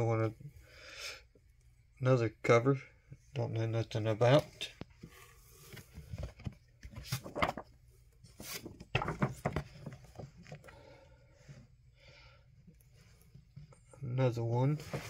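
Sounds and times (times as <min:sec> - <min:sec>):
paper covers rustling and sliding: 0:05.0 - 0:10.4, 0:14.7 - 0:15.0.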